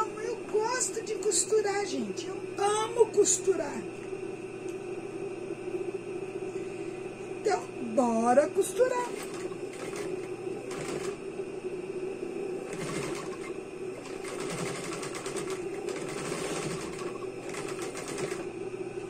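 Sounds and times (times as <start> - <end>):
sewing machine stitching: 8.9 - 11.2, 12.7 - 18.5.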